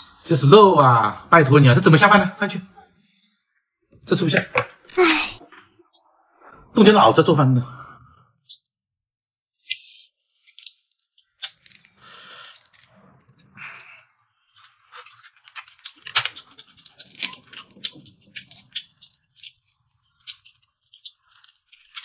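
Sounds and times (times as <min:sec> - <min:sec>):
shrimp shell crackling: 0:14.5 - 0:22.0.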